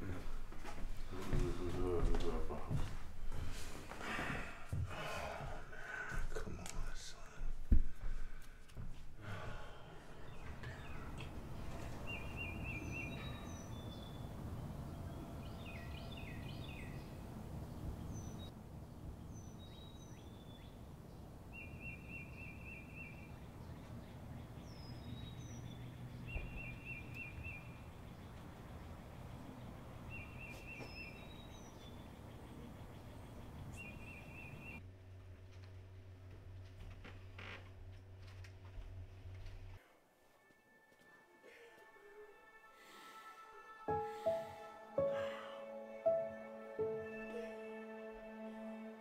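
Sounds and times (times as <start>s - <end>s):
high bird chirps: 12.0s - 14.3s.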